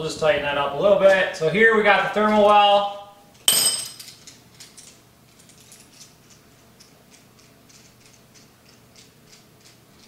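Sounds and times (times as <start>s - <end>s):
metal fittings clicking in hands: 4.2s - 10.0s.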